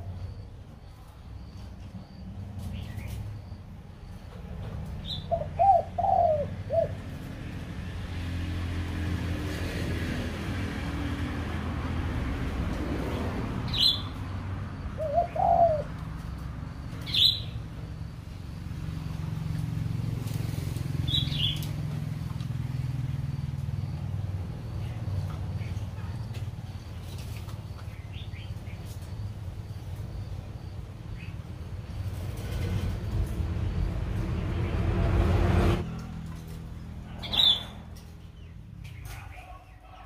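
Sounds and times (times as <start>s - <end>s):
birds warbling: 5.0s - 7.1s, 14.9s - 15.9s, 37.1s - 40.0s
sharp high bird chirps: 17.0s - 17.6s, 37.2s - 37.8s.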